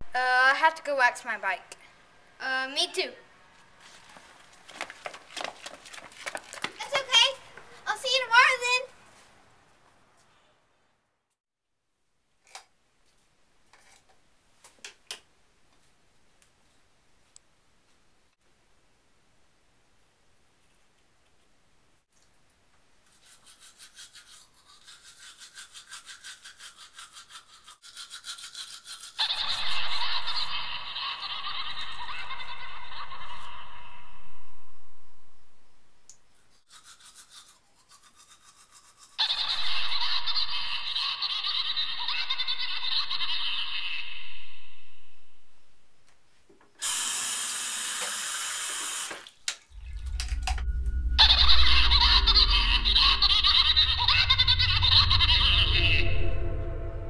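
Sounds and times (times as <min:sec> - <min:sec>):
toothbrush scrubbing teeth: 0:23.0 - 0:29.9, 0:36.4 - 0:39.9
low rumble: 0:49.7 - 0:57.0.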